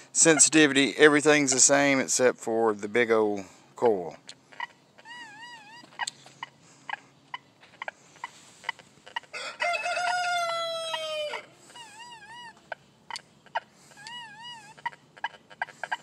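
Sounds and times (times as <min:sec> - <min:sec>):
rooster crowing: 0:09.3 - 0:11.6.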